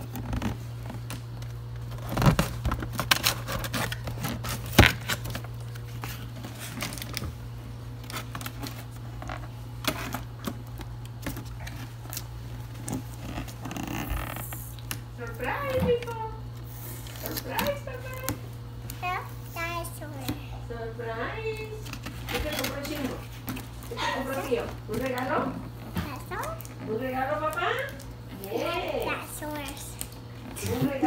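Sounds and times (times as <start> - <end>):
cardboard packaging rustling and tearing: 0.0 - 15.0, 16.6 - 18.4, 21.8 - 26.8
steady low hum: 0.0 - 31.0.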